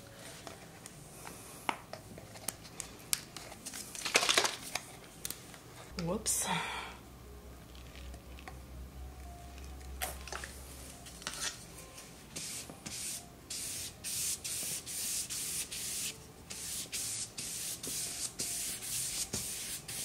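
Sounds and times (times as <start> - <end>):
spray bottle misting: 12.4 - 20.0.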